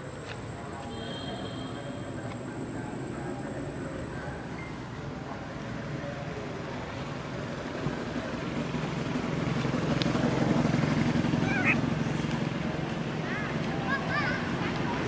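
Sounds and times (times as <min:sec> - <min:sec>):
motor engine running: 0:05.2 - 0:15.0.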